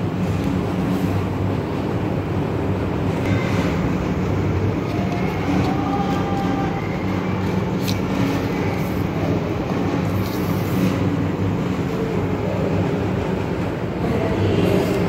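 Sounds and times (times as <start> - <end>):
low even hum: 0.0 - 15.0
steady rumbling noise: 0.0 - 15.0.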